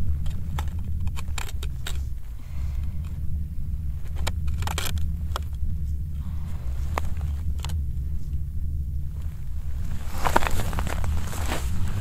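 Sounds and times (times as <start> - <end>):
wind buffeting microphone: 0.0 - 12.0
clicks and crunches in snow: 9.1 - 12.0.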